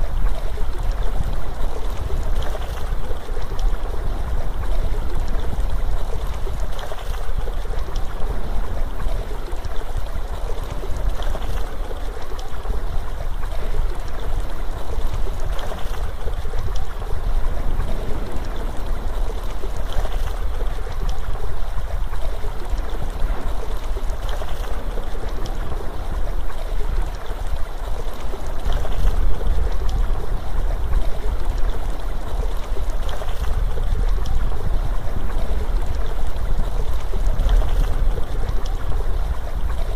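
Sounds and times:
waterfall rushing: 14.4s - 28.5s
deep rumble: 16.7s - 22.2s.

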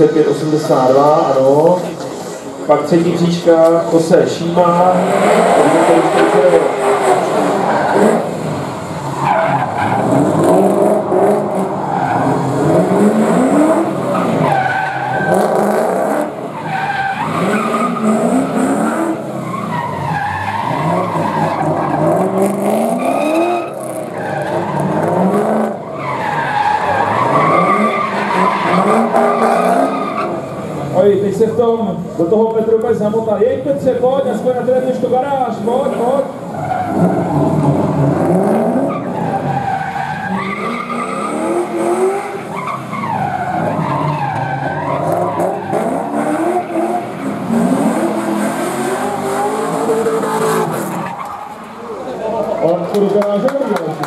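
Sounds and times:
car engine revving hard: 4.5s - 31.0s, 35.7s - 51.0s.

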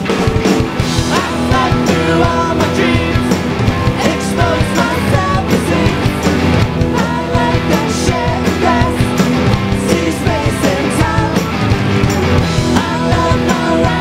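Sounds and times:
drums: 0.0s - 14.0s
guitars: 0.0s - 14.0s
person singing: 1.1s - 6.3s, 6.9s - 9.2s, 9.8s - 11.6s, 12.6s - 14.0s.

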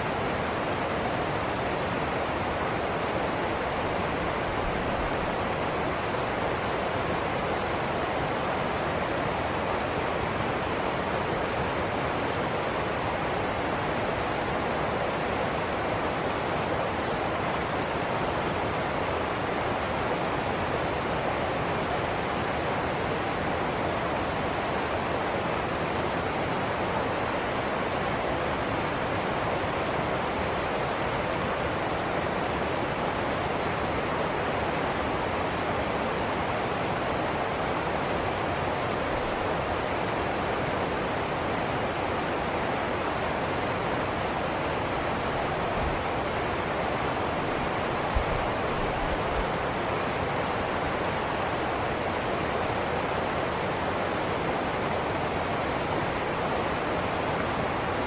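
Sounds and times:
river rushing over rocks: 0.0s - 58.0s.

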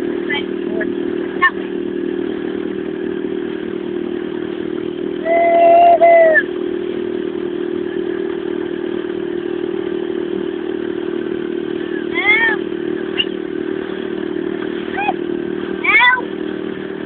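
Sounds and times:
high held tone: 0.0s - 16.3s
outboard motor running: 0.0s - 17.0s.

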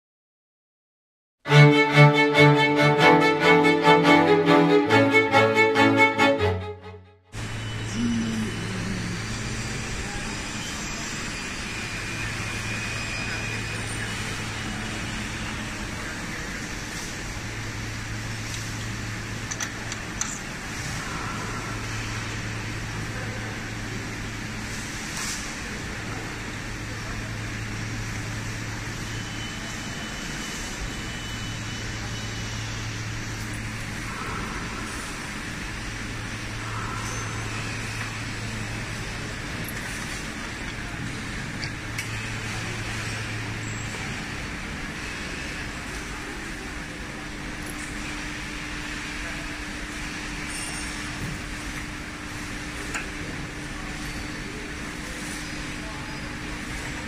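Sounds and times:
low hum: 1.5s - 10.5s
factory machines running: 1.5s - 57.0s.

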